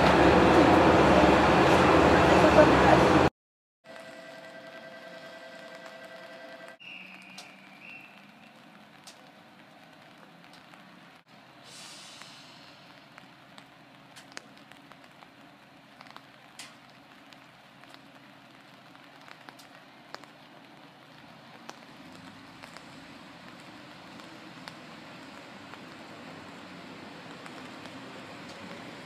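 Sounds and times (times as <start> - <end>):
diesel railcar rumble: 0.0 - 3.3
light rain pattering: 5.5 - 29.0.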